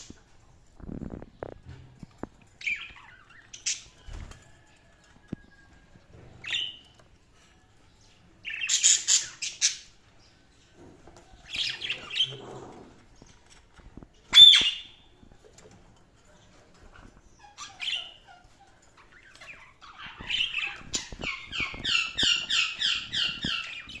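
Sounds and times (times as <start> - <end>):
budgerigars chirping and squawking: 2.6 - 4.2, 6.4 - 7.0, 8.4 - 10.2, 11.3 - 13.3, 14.3 - 15.1, 16.7 - 24.0.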